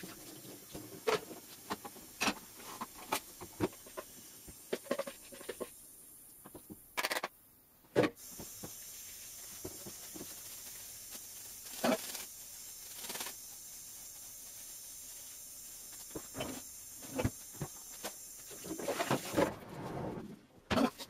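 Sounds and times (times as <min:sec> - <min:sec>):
dumplings frying with hiss: 0:00.0 - 0:19.5.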